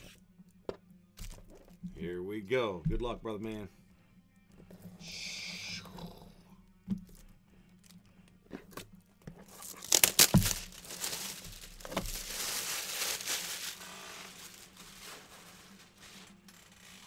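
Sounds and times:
plastic wrap snapping: 9.4s - 16.8s
plastic wrap crinkling: 9.4s - 17.0s.

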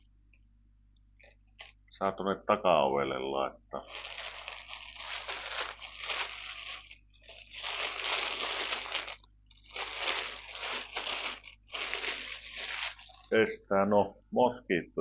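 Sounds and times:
plastic packaging crinkling: 1.2s - 1.9s, 3.8s - 13.4s.

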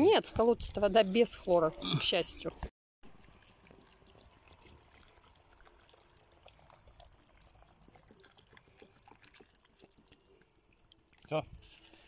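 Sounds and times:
water drips and splashes: 3.0s - 12.0s
water trickling into bucket: 3.0s - 12.0s.

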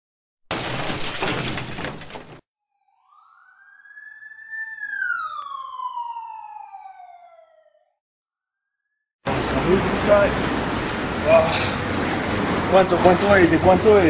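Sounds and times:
glass breaking crash: 0.5s - 2.4s
siren call: 2.6s - 8.0s.

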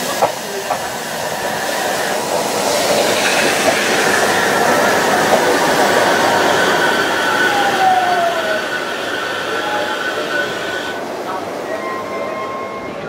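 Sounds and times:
high train whine: 0.0s - 13.0s
train wheels rumbling on rail: 0.0s - 13.0s.

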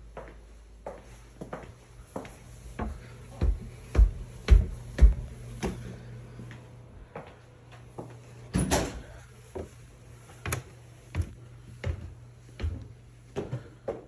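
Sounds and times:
footsteps on tile and wooden stairs: 0.0s - 8.2s, 9.5s - 14.0s.

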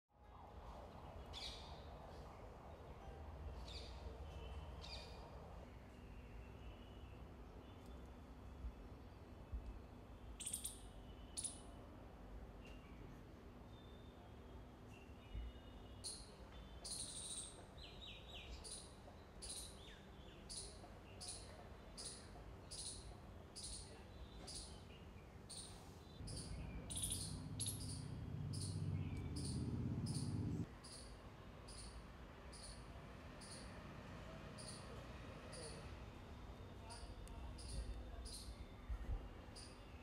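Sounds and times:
low background noise: 0.1s - 40.0s
small bird chirping: 10.4s - 11.7s, 16.0s - 17.6s, 18.4s - 33.8s, 34.6s - 35.8s
falling bird chirps: 25.5s - 31.0s
low steady rumble: 26.2s - 30.7s.

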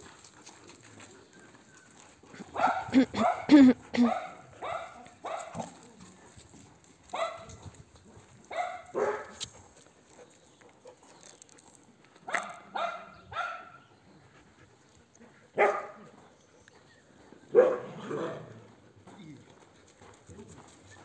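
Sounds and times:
dog barking: 2.5s - 5.8s, 7.1s - 7.6s, 8.5s - 9.4s, 12.3s - 13.8s, 15.6s - 16.2s, 17.5s - 18.5s.

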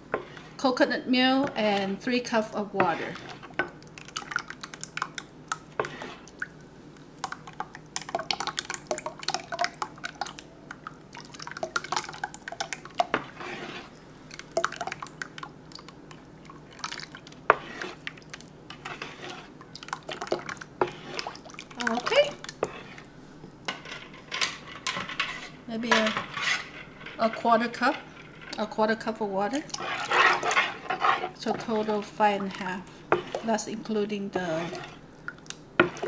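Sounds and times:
metal ladle stirring batter: 0.0s - 6.6s, 7.2s - 23.1s, 23.7s - 36.0s
batter pouring and dripping: 3.2s - 23.1s.

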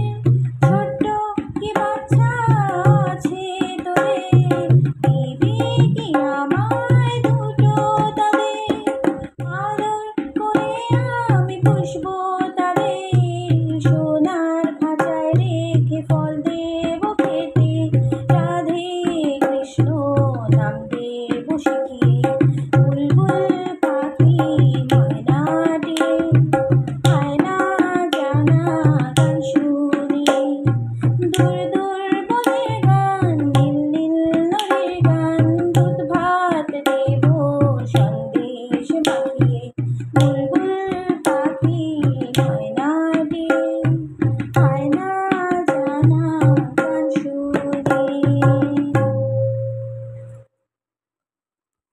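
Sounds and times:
tabla bass strokes: 0.0s - 3.2s, 4.3s - 7.7s, 17.6s - 18.5s, 21.6s - 23.6s, 24.2s - 27.4s, 30.6s - 31.7s, 39.4s - 40.5s, 43.8s - 44.9s, 47.8s - 50.5s
woman singing: 0.0s - 49.6s.

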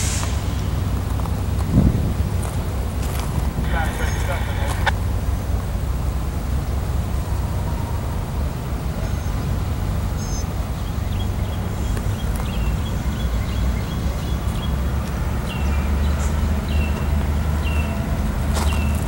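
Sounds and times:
diesel locomotive idling: 0.0s - 19.0s
bird chirps: 10.2s - 14.8s, 15.4s - 18.0s.

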